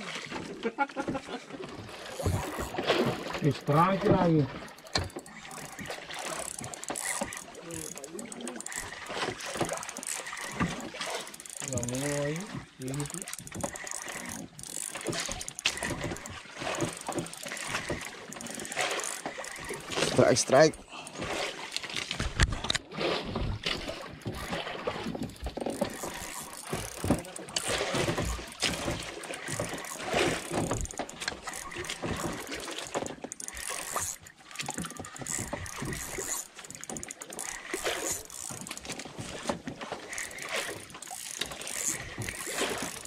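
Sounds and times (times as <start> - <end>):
knocks against boat: 2.2 - 3.2, 3.8 - 5.2, 25.1 - 31.4
fishing reel clicking: 4.6 - 20.7, 25.3 - 39.1, 40.0 - 43.0.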